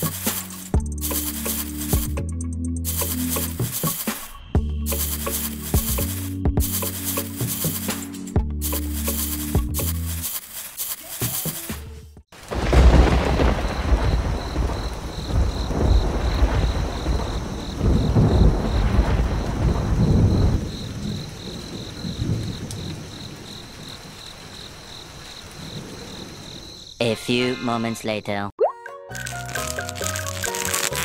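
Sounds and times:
steady rain: 2.9s - 4.0s, 12.4s - 26.8s, 29.5s - 31.0s
rolling thunder: 12.4s - 26.8s.

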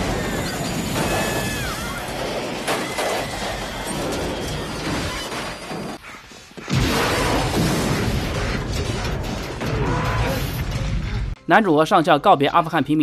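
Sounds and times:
helicopter crashing: 0.0s - 6.0s
loud explosion rumbling: 6.7s - 11.4s.

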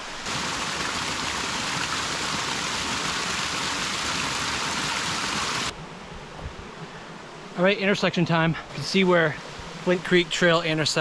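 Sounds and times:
rushing mountain stream: 0.0s - 5.7s.

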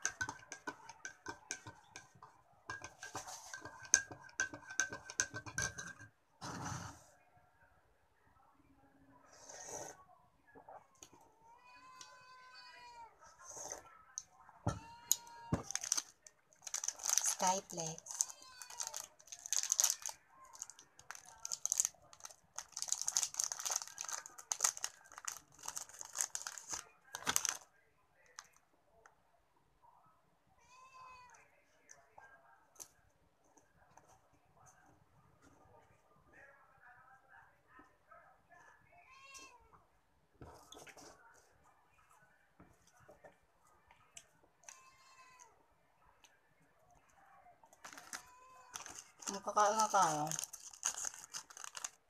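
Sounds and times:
metal spoon clinking in ceramic mug: 0.0s - 6.1s
plastic sachet crinkling: 15.6s - 27.6s, 47.8s - 52.0s.

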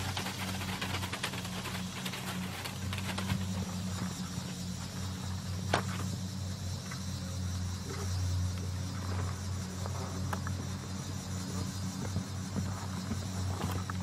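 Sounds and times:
hoofbeats on sand: 0.0s - 5.0s
faint insect-like hiss: 0.0s - 14.0s
steady low hum: 0.0s - 14.0s.

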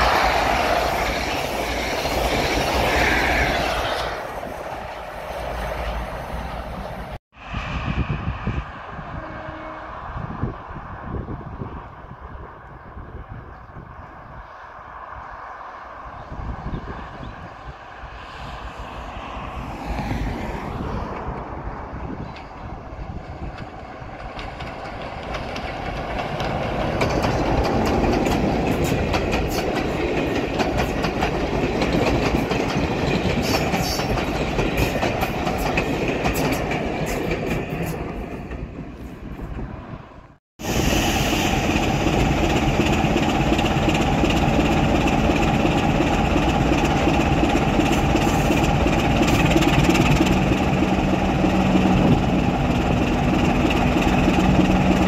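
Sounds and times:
diesel locomotive passing: 0.0s - 55.0s
wheels clicking over rail joints: 23.4s - 38.8s, 42.2s - 55.0s.

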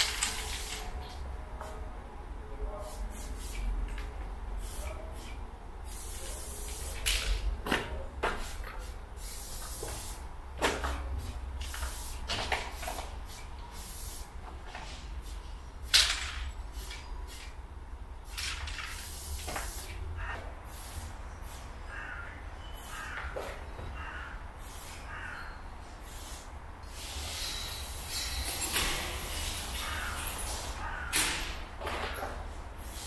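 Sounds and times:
spray can hissing: 0.0s - 0.9s, 2.8s - 3.7s, 4.6s - 7.0s, 8.4s - 10.2s, 11.2s - 14.4s, 16.7s - 17.6s, 18.2s - 20.0s, 20.6s - 21.7s, 24.6s - 25.0s, 26.0s - 28.5s, 32.8s - 33.0s.

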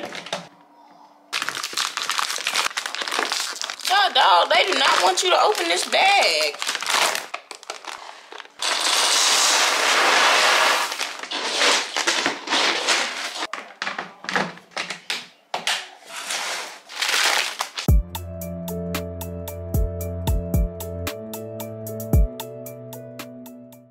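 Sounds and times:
paper bag crinkling: 1.3s - 14.9s, 16.0s - 17.9s
dry kibble pouring into plastic bin: 8.6s - 13.5s.

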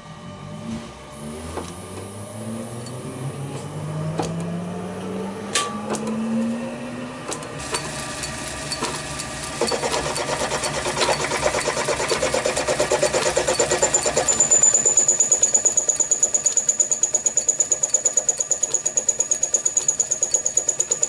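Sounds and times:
lathe motor hum: 0.0s - 21.0s
fast mechanical clatter: 7.3s - 21.0s.

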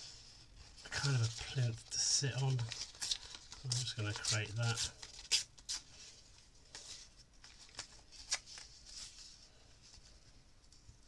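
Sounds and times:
paper tearing: 0.9s - 5.9s.

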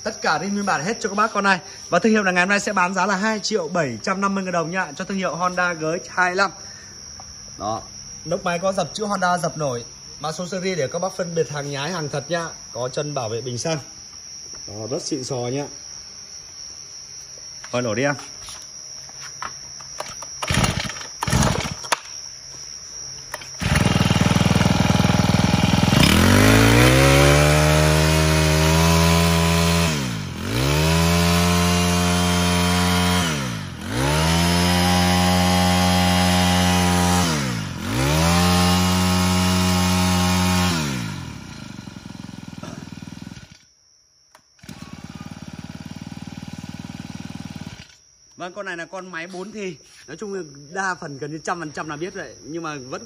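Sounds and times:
brush cutter engine revving: 20.0s - 22.1s, 23.3s - 43.7s, 44.6s - 48.0s.

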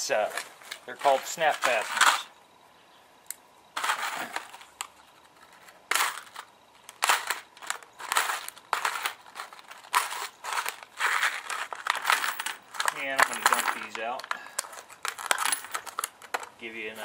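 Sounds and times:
plastic crackling and crinkling: 3.8s - 16.6s.

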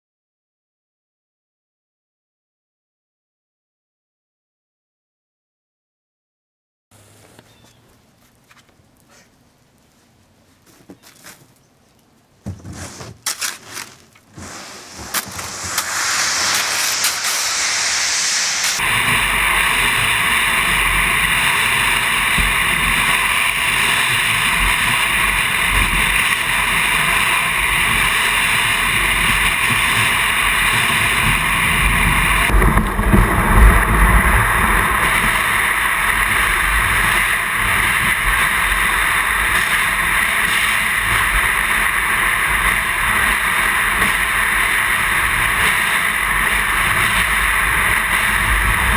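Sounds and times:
kayak knocks and scrapes: 12.4s - 15.1s
hull sliding over snow: 12.6s - 48.9s.

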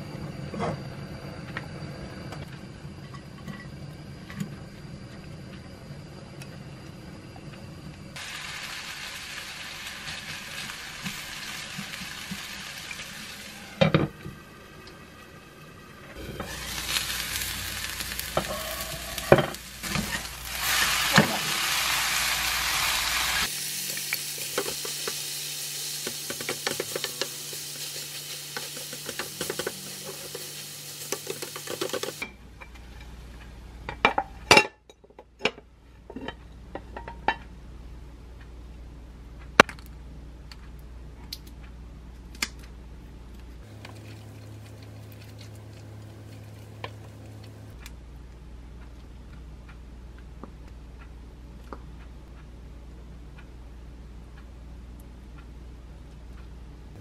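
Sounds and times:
batter sizzling in frying pan: 8.2s - 13.9s, 16.2s - 32.2s.

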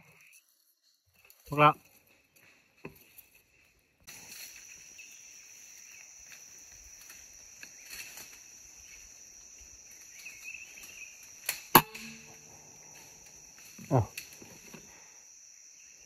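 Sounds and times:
insects buzzing: 0.0s - 16.0s
air rifle shot: 11.7s - 12.4s
faint ringing: 11.8s - 13.4s.

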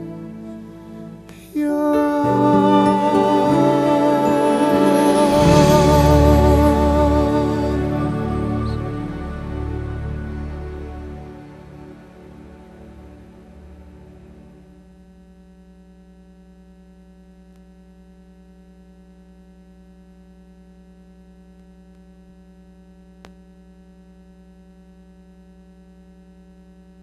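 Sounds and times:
music: 0.0s - 14.9s
electrical hum with buzz: 13.6s - 27.0s.

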